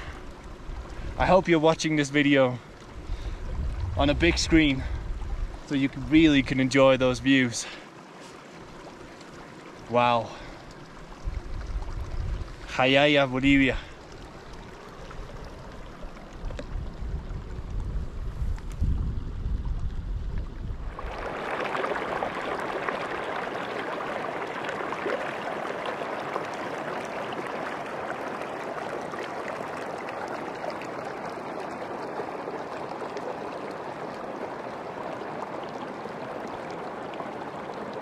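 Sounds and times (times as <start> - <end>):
wind rumbling on microphone: 0.0 - 1.6, 2.8 - 7.3, 11.0 - 23.4
mountain stream flowing: 0.0 - 18.3, 20.8 - 38.0.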